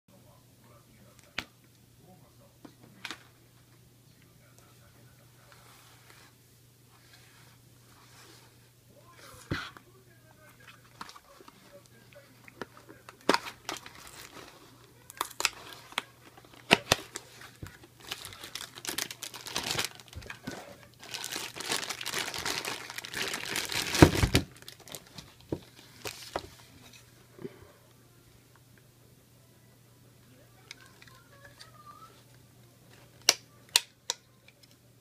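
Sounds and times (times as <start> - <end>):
plastic bag crinkling and tearing: 13.0 - 26.4
plastic snap: 33.2 - 34.8.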